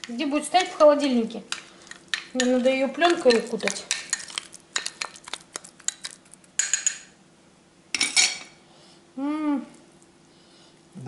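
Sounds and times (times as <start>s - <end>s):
metal spoon clinking on glass bowl: 5.9s - 7.1s.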